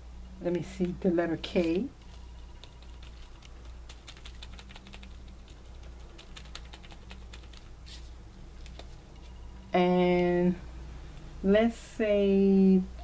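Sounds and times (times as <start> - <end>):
sponge dabbing on paper: 0.6 - 9.4.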